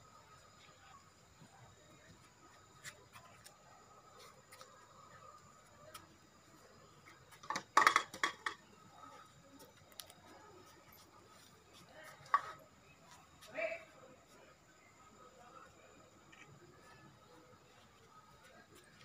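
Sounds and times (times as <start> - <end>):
dishes clattering together: 7.5 - 8.6.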